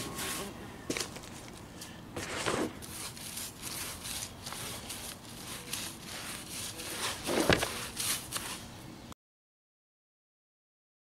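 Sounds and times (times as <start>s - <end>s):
paintbrush scrubbing on concrete: 0.0s - 0.6s, 2.2s - 8.8s.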